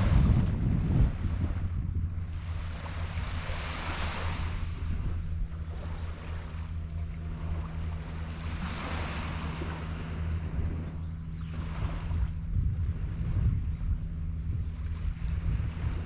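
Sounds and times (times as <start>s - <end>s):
steady low hum: 0.0s - 16.0s
small waves washing onto sand: 2.3s - 10.9s.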